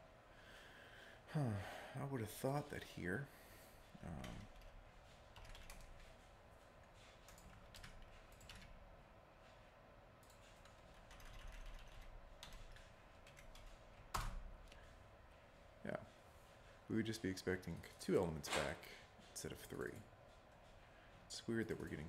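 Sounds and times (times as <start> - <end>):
keyboard typing: 4.0 - 6.2, 6.9 - 8.8, 10.2 - 14.6.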